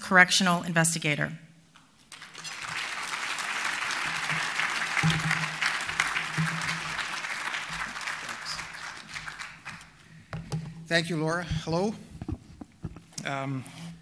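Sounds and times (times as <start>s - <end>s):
audience applauding: 2.1s - 10.0s.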